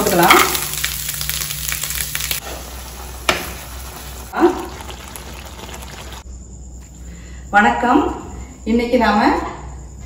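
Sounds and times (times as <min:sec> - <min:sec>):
gravy bubbling in a pan: 0:00.0 - 0:06.2.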